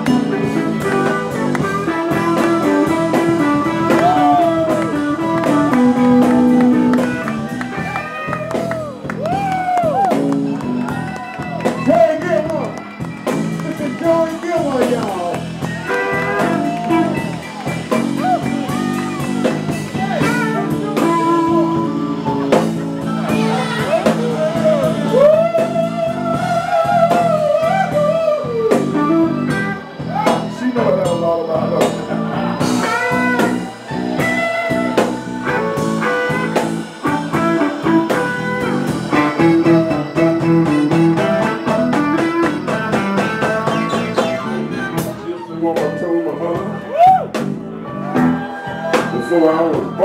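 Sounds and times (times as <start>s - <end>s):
drum kit beat: 0.0s - 46.0s, 46.6s - 50.0s
bass guitar: 0.0s - 50.0s
electric guitar lead lines: 0.0s - 50.0s
live blues band playing: 0.0s - 50.0s.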